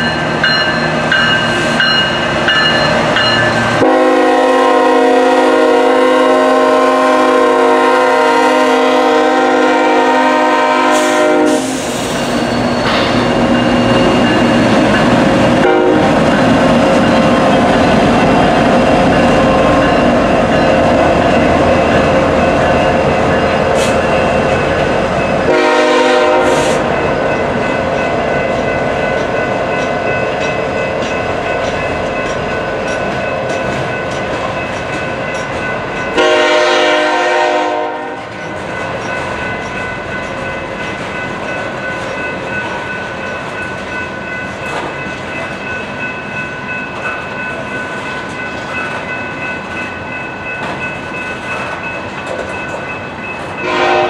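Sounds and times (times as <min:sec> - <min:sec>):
freight train rumbling past: 0:00.0 - 0:54.0
locomotive air horn blasts: 0:03.8 - 0:12.0, 0:15.6 - 0:16.1, 0:25.5 - 0:26.9, 0:36.2 - 0:38.2, 0:53.6 - 0:54.0.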